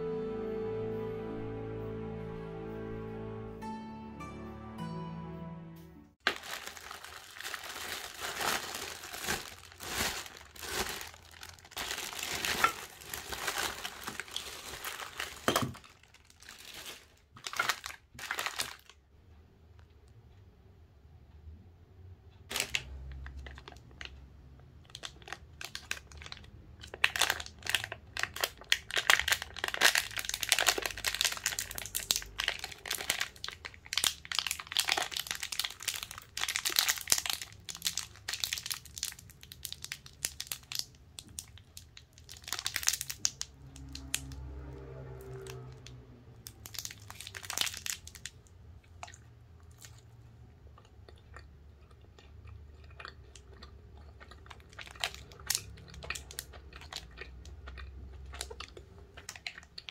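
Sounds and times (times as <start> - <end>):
plastic wrapper crinkling: 6.2 - 19.0, 22.5 - 24.2, 24.8 - 44.4, 45.3 - 50.0.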